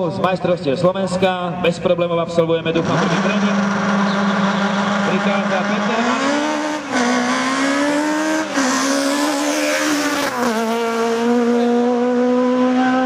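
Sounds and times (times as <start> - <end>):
race car engine at high revs: 2.6 - 13.0.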